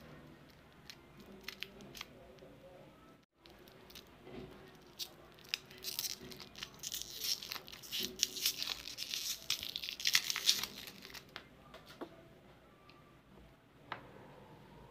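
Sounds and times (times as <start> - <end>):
wrapper crinkling and tearing: 4.7 - 11.3.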